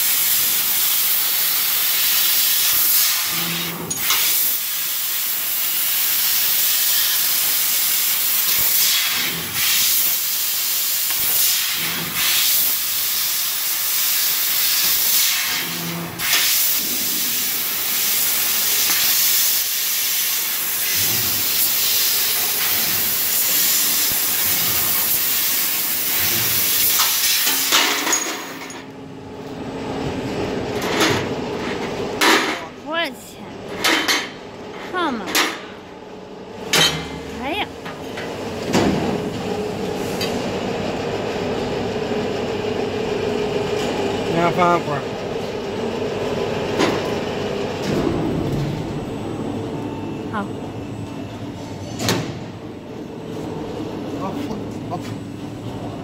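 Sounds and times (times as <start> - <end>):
low machine hum: 28.9 - 56.0.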